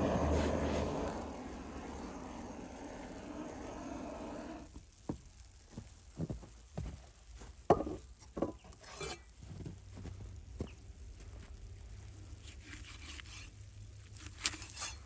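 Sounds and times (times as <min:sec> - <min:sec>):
blowtorch flame rushing: 0:00.0 - 0:04.8.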